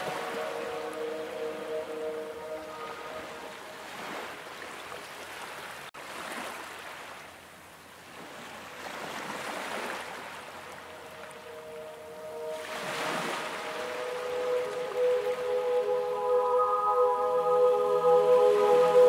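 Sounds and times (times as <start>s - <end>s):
ocean waves breaking: 0.0s - 7.4s, 8.0s - 19.0s.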